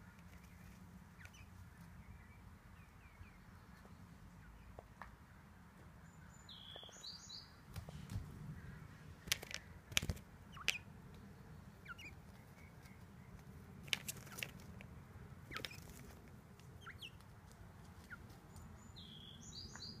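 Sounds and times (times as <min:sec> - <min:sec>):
quail chirping calls: 0:00.1 - 0:04.8, 0:06.2 - 0:07.6, 0:08.5 - 0:11.0, 0:11.6 - 0:14.7, 0:15.4 - 0:17.3, 0:17.9 - 0:20.0.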